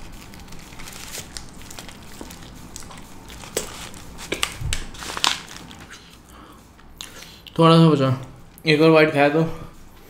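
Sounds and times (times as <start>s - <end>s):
paper wrapper crinkling: 0.0s - 6.1s
person chewing food: 1.1s - 7.6s.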